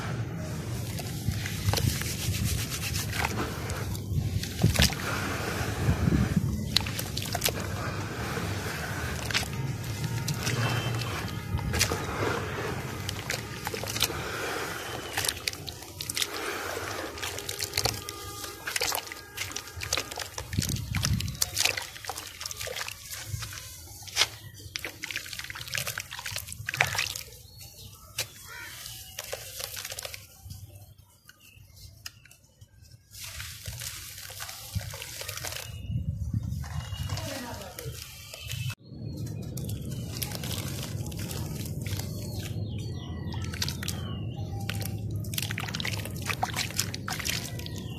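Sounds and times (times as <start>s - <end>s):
water sloshing and dripping: 0.1s - 47.9s
dirt crumbling with crackling clicks: 6.6s - 30.6s, 36.6s - 47.9s.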